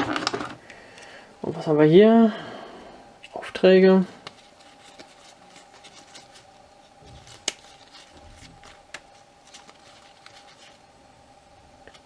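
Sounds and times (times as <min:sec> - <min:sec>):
game cards rustling and clicking: 0:00.0 - 0:01.1, 0:04.2 - 0:10.8
faint steady hum: 0:00.0 - 0:12.0.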